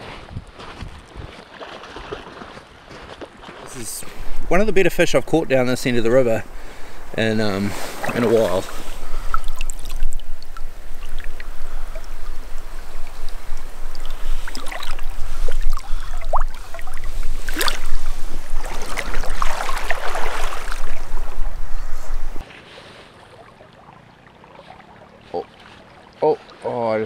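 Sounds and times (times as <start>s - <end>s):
river water splashing and gurgling: 1.3s - 27.0s
fish splashing: 6.4s - 26.6s.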